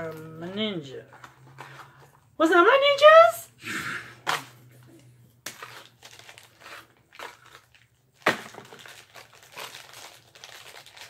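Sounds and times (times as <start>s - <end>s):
plastic wrapper crinkling and tearing: 5.0s - 11.0s.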